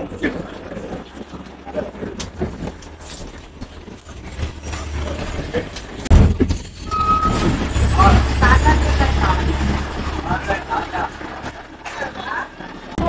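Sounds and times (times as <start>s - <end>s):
bus engine and road rumble: 0.0s - 13.0s
high-pitched tone: 6.8s - 11.3s.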